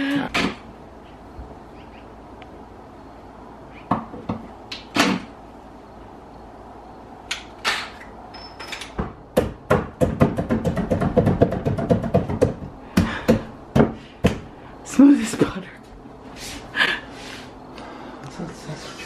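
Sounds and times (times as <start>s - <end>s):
faint steady hum: 0.0s - 19.0s
objects knocking and clunking: 3.9s - 5.4s, 7.4s - 14.5s.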